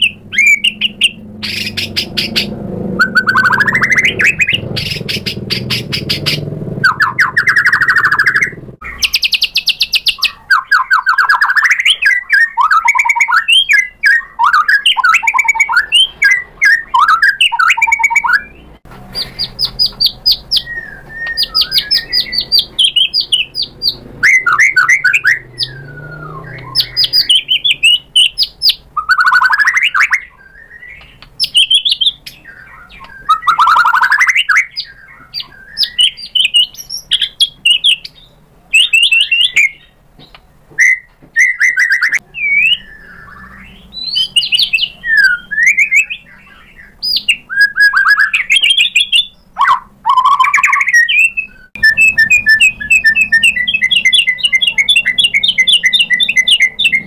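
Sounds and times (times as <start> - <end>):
bird singing varied song: 0.0 - 57.0.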